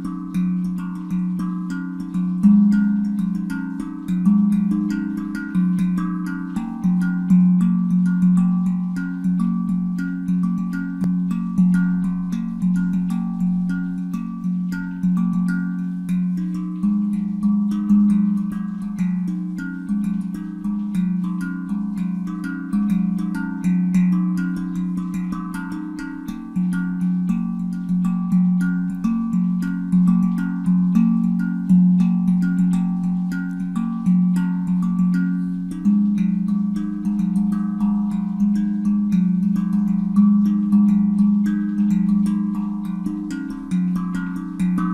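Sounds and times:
handpan deep ringing notes: 0.0 - 44.9
light finger taps on handpan: 0.0 - 44.9.

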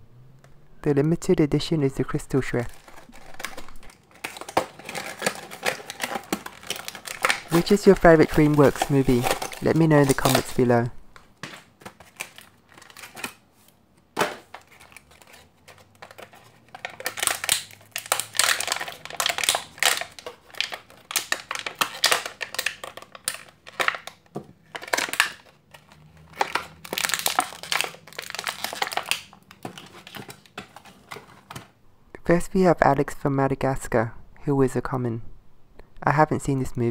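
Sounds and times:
plastic packaging crinkling: 2.0 - 31.8.

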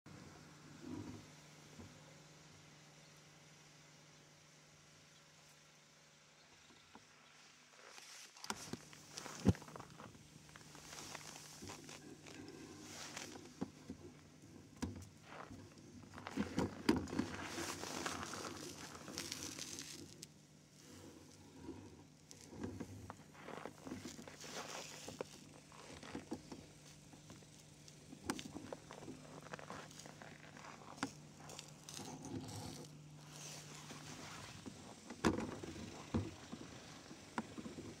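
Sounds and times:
faint steady hum: 0.1 - 38.0
rustling and crunching: 7.7 - 38.0.

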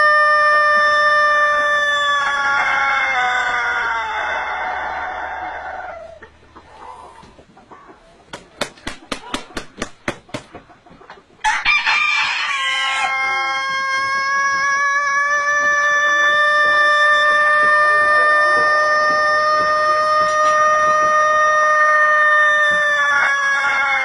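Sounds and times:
rooster crowing: 0.0 - 6.2, 11.4 - 24.0
wing claps: 8.3 - 10.6.

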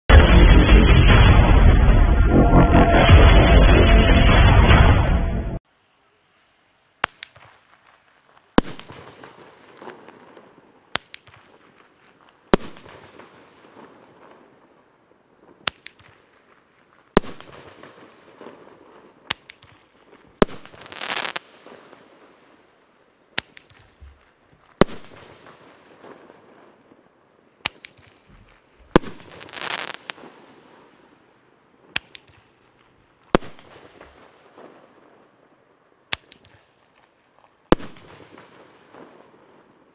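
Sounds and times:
firework star cracking: 7.0 - 10.2, 10.9 - 13.4, 15.6 - 16.4, 19.2 - 22.1, 23.3 - 26.4, 27.6 - 31.1, 31.9 - 34.7, 36.1 - 37.1.

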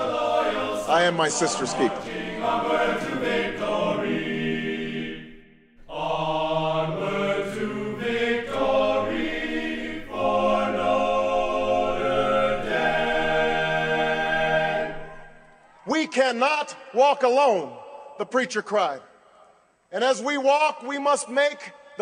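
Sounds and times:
choir singing held chords: 0.0 - 15.8.

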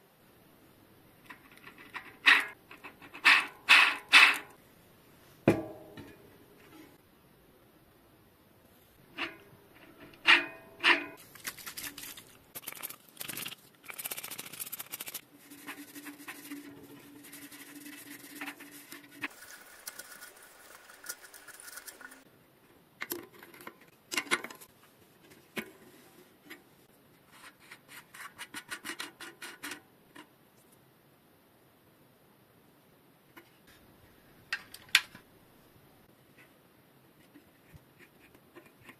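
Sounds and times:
scrubbing bicycle hub: 9.1 - 22.3.

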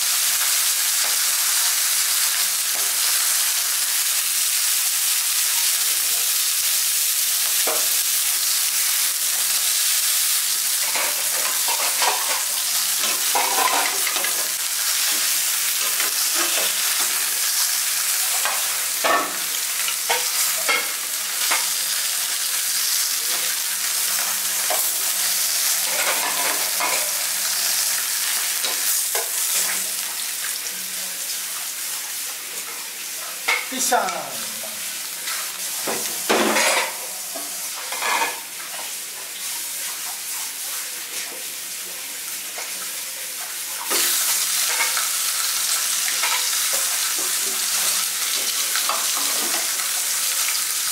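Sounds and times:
fish sizzling in hot oil: 0.0 - 50.9.

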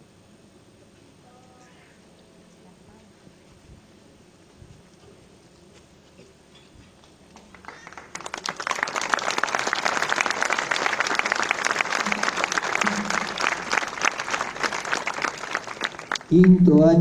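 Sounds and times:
audience applauding: 7.4 - 16.9.

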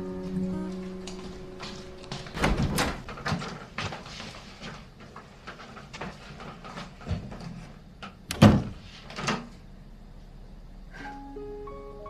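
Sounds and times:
door clicks and knocks: 2.2 - 3.6.

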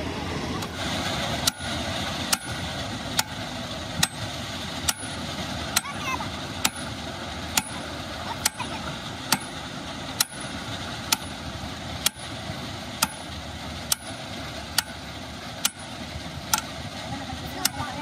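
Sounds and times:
steady engine noise: 0.0 - 18.0
hammer striking steel: 1.4 - 3.4, 4.0 - 4.2, 4.8 - 6.9, 7.5 - 9.6, 10.2 - 11.4, 12.0 - 12.4, 13.0 - 14.2, 14.8 - 15.0, 15.6 - 16.7.

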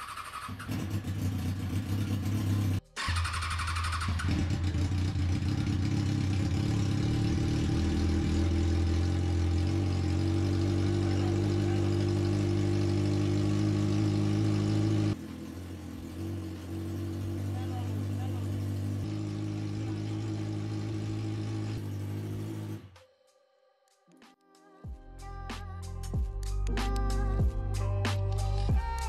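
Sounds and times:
motorcycle engine running: 0.0 - 23.0.

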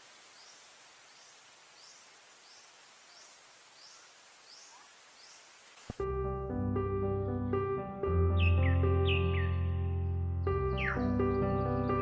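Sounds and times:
steady hiss: 0.0 - 6.0.

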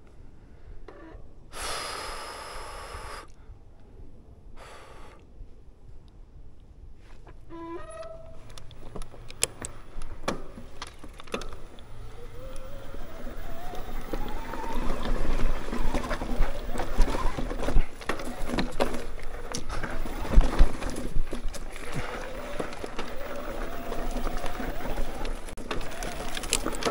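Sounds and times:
bike tyres rolling on dirt: 6.9 - 26.9
rising whir: 8.2 - 26.9.

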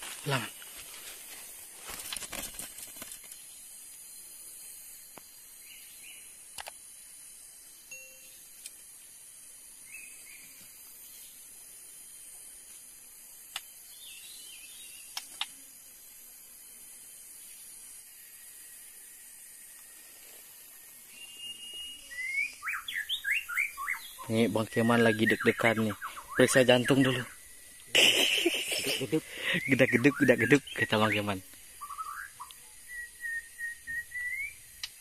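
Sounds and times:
steady high hiss: 0.0 - 35.0
sharp clicks: 6.5 - 6.8, 15.1 - 15.5
bird chirps: 21.1 - 35.0.

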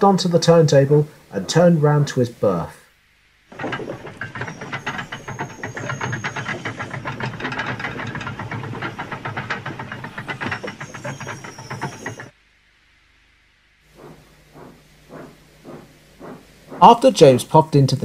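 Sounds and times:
steam locomotive chuffing: 0.1 - 2.8, 3.5 - 12.4, 13.9 - 18.0
hissing steam: 13.9 - 17.7.

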